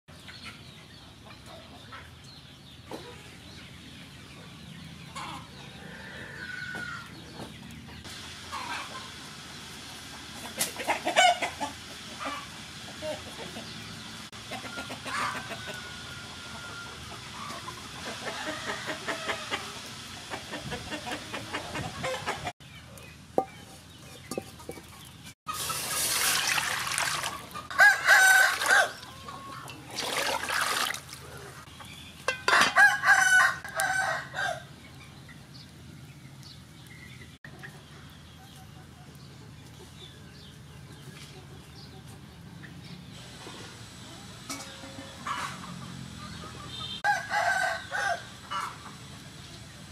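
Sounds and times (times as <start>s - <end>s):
hens clucking: 0.2s - 34.5s, 37.5s - 47.7s
rooster crowing: 5.8s - 7.1s, 15.1s - 17.0s, 27.7s - 29.7s, 32.5s - 34.7s, 47.0s - 48.7s.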